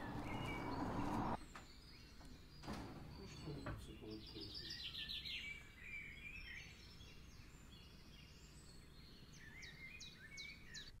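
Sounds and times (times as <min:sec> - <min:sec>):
birdsong chirps and warbling: 0:00.0 - 0:11.0.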